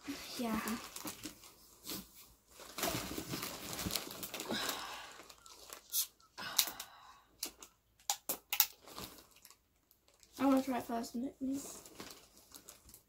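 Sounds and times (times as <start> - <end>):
plastic crinkling: 0.1 - 13.0.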